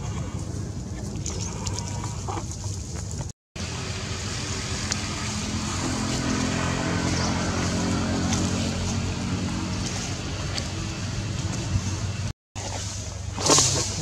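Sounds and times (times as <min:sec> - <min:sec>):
vehicle engine running: 0:03.6 - 0:14.0.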